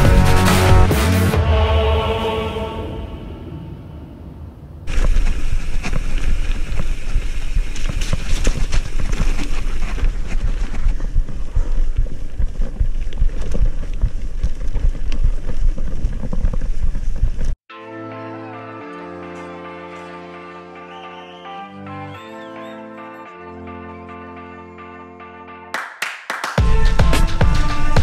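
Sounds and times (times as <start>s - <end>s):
bike rattling over stones: 4.9s - 17.6s.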